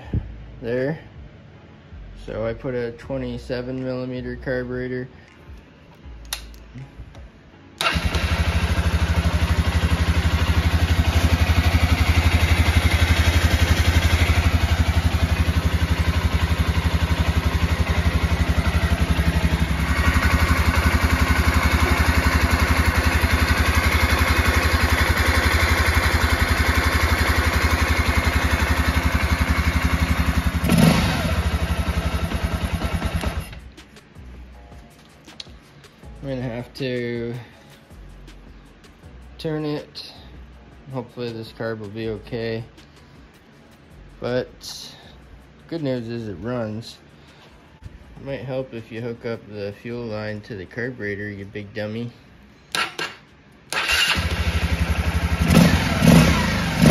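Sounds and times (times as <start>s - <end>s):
motorcycle engine idling: 7.8s - 33.6s, 53.8s - 56.9s.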